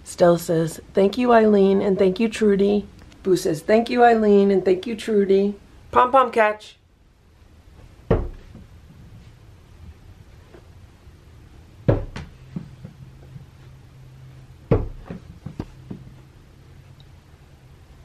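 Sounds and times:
low steady hum: 0.0s - 18.0s
dull knocks and thumps: 8.0s - 9.2s, 11.8s - 13.7s, 14.6s - 16.2s.

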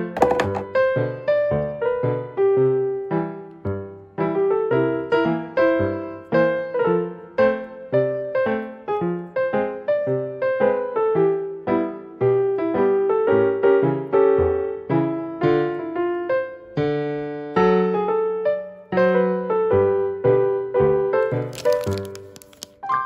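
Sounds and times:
piano-like keyboard melody: 0.0s - 23.0s.

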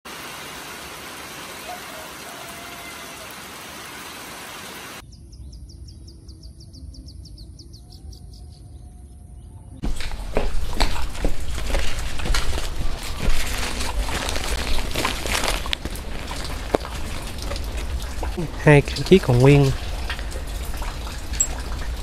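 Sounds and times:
low rumble: 8.4s - 22.0s.

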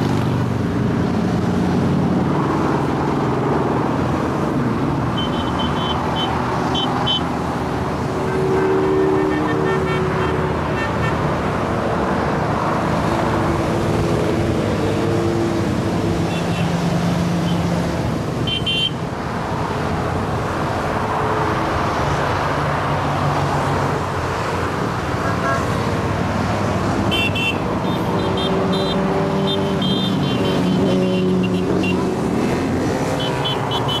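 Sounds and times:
motorcycles passing: 0.0s - 34.0s
horn beeps: 5.2s - 7.3s, 27.1s - 32.0s, 33.2s - 34.0s.

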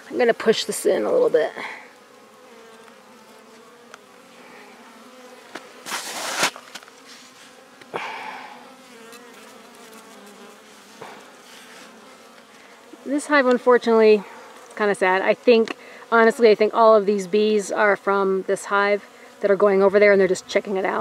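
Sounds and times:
honeybees buzzing: 0.0s - 21.0s.

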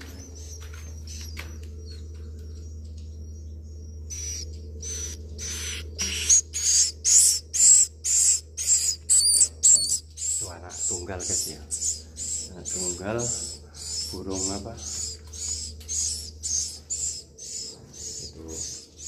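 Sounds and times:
low steady hum: 0.0s - 19.0s
bird chick raspy hissing calls: 4.1s - 18.8s.

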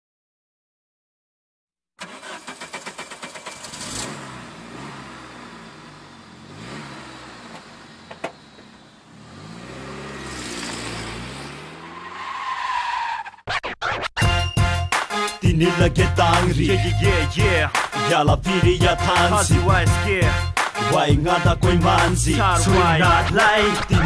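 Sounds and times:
car engine revving: 2.0s - 13.2s, 16.2s - 24.0s
hip hop beat: 13.8s - 24.0s.

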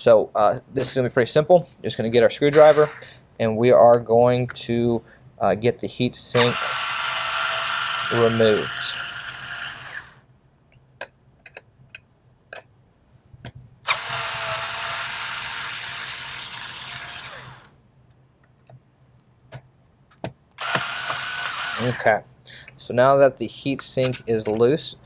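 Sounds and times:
electric screwdriver running: 2.6s - 3.0s, 6.4s - 10.2s, 13.9s - 17.7s, 20.6s - 22.0s.

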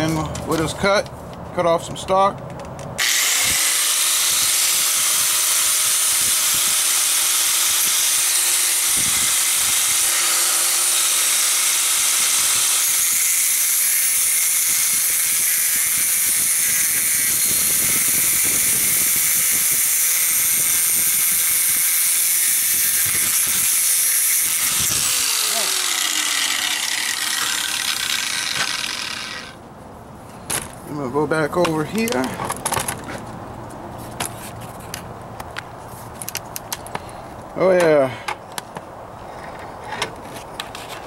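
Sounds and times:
angle grinder motor whine: 3.0s - 29.6s
grinder disc cutting metal: 3.0s - 29.6s.

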